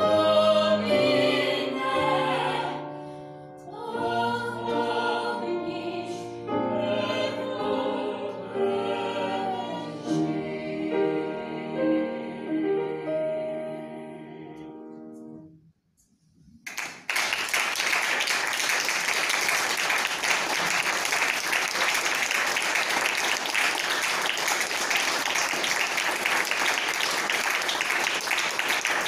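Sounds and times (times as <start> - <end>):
audience applauding: 16.7 - 29.0.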